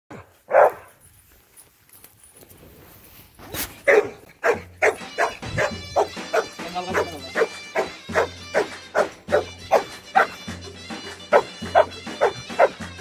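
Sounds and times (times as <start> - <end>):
dog barking: 0.1 - 0.9, 3.8 - 10.4, 11.3 - 12.8.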